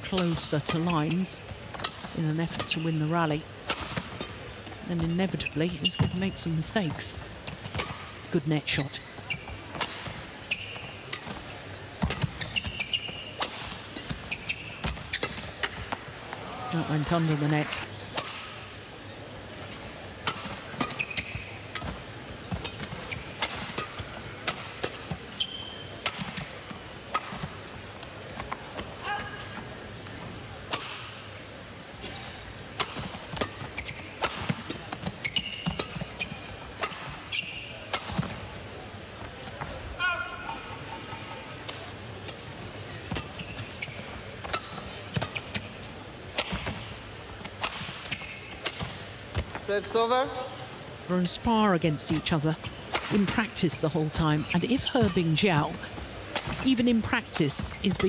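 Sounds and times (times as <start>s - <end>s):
shoes squeaking on court: 0.0s - 19.2s, 19.9s - 30.2s, 32.4s - 39.8s, 40.7s - 49.8s, 51.1s - 58.0s
badminton racket hitting shuttlecock: 56.3s - 56.6s.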